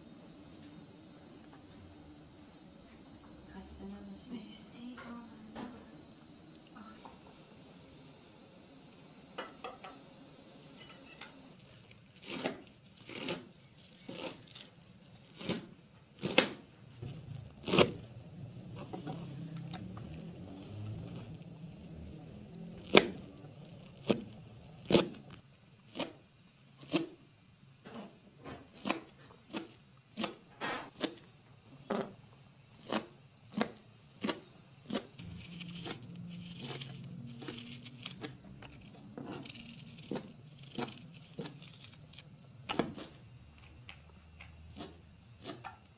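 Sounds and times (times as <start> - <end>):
onion peeling rustle: 11.5 - 27.2, 32.7 - 43.8
knife chopping on cutting board: 15.4 - 16.6, 27.9 - 31.2, 32.8 - 35.1.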